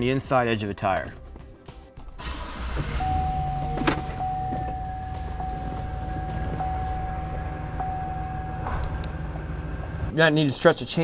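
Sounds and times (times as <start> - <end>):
truck engine running: 2.2 - 10.2
pulsing warning tone: 2.9 - 10.1.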